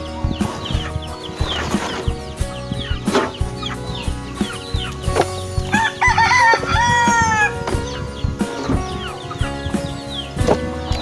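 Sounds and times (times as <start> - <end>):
knocks of feed trays: 0.3 - 3.8
rooster crowing: 5.7 - 7.6.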